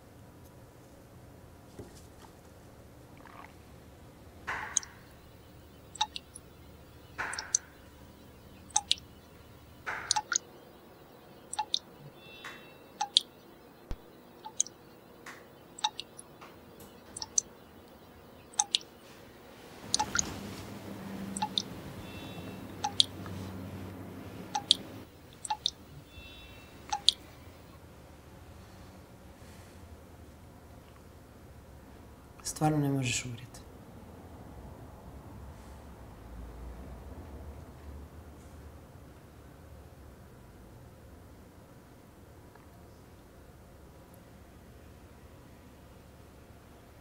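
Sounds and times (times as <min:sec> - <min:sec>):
sharp short ticking: 0:04.5 - 0:10.6, 0:11.5 - 0:14.8, 0:15.8 - 0:16.3, 0:17.0 - 0:18.9, 0:19.8 - 0:20.3, 0:21.3 - 0:21.7, 0:22.7 - 0:23.2, 0:24.5 - 0:25.9, 0:26.9 - 0:27.2.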